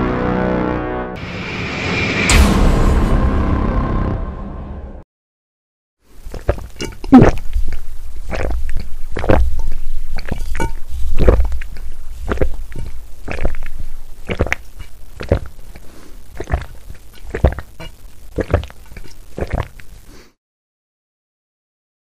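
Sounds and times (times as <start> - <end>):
person gulping a drink: 6.1 - 20.3.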